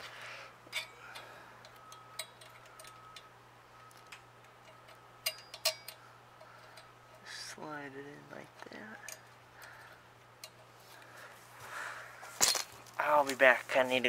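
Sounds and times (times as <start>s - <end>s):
metallic clicks of bolt and washers: 0.7s - 7.3s, 8.6s - 10.7s.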